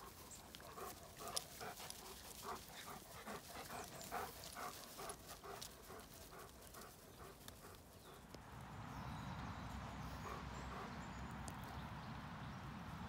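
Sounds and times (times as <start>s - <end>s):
dog panting: 0.0s - 8.2s, 10.1s - 11.2s.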